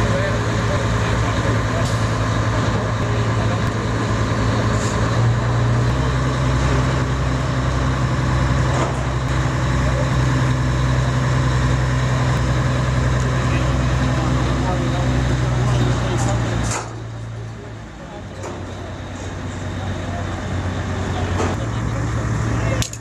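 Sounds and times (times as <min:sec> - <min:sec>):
engine humming steadily: 0:00.0 - 0:23.0.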